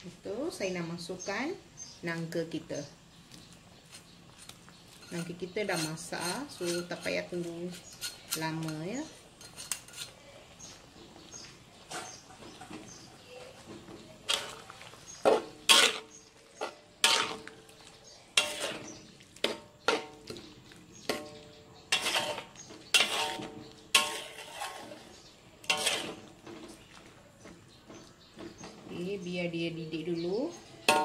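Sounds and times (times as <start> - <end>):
metal ladle clanking against wok: 14.3 - 17.7, 18.3 - 26.8.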